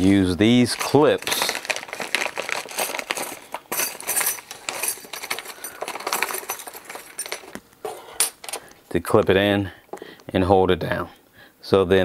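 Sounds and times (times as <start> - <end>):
clips rattling in plastic bag: 0.0 - 7.6
plastic packaging crinkling: 0.0 - 8.8.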